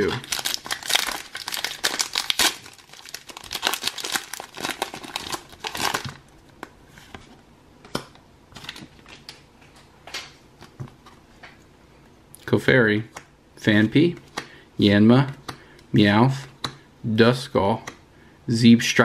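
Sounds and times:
foil wrapper tearing and crinkling: 0:00.0 - 0:06.2.

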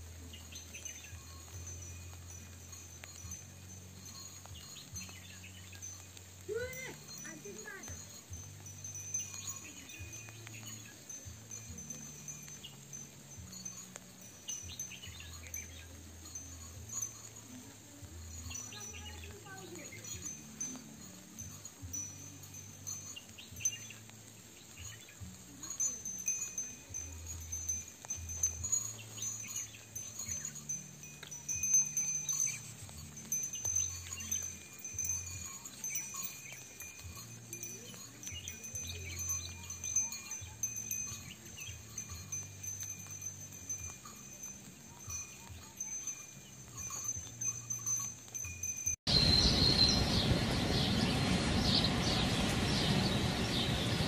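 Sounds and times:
wind chimes ringing softly: 0:00.0 - 0:54.0
bird chirps: 0:00.2 - 0:06.9, 0:07.6 - 0:16.7, 0:22.5 - 0:26.6, 0:49.1 - 0:54.0
low held tone: 0:49.1 - 0:54.0
low humming drone: 0:49.1 - 0:54.0.

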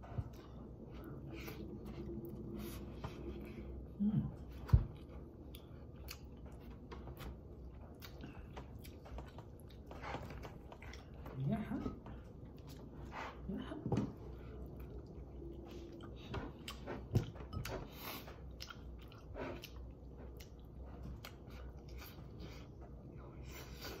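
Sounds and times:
person chewing chicken: 0:04.9 - 0:11.4, 0:14.5 - 0:24.0.

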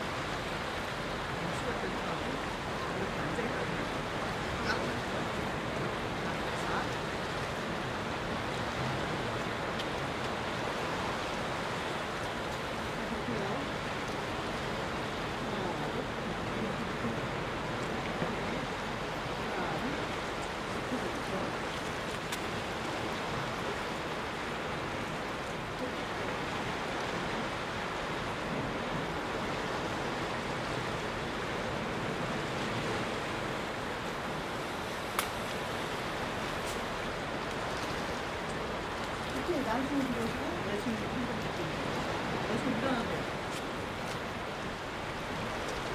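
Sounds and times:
surf on rocky shore: 0:00.0 - 0:45.9.

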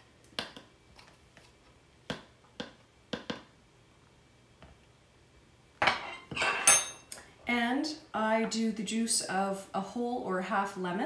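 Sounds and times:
kitchen utensils clattering: 0:05.8 - 0:07.1.

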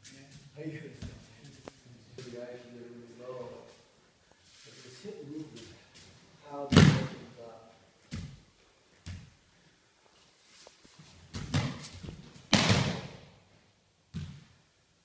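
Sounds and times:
thuds of bodies on mats: 0:11.3 - 0:13.2.

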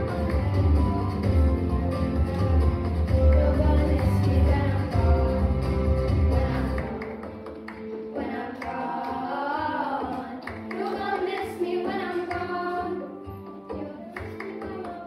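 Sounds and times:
backing track with steady beat: 0:00.0 - 0:15.0
children singing: 0:08.2 - 0:13.2.

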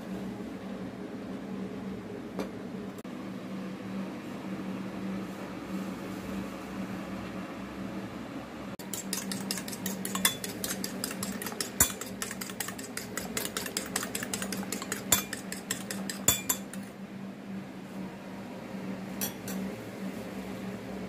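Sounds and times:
steady low hum: 0:00.0 - 0:21.0
whisk clicking against ceramic bowl: 0:08.8 - 0:16.9.

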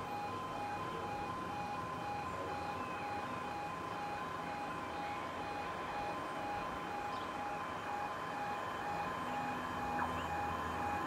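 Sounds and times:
level crossing alarm two tones: 0:06.4 - 0:11.0.

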